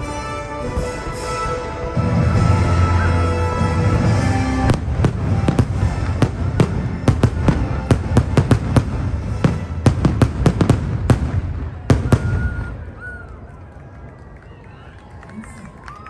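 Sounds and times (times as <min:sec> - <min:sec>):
fireworks bangs: 0:00.6 - 0:13.4.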